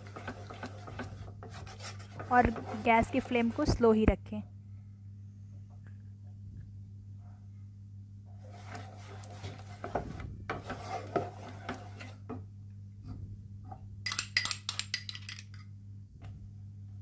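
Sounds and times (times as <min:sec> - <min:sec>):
spatula knocking on pan: 0:00.0 - 0:03.5
spatula scraping metal pan: 0:00.0 - 0:03.8, 0:08.4 - 0:12.4.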